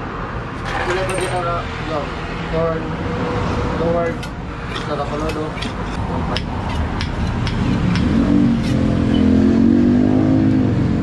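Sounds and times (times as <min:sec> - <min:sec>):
metal parts clicking: 0:00.6 - 0:01.5.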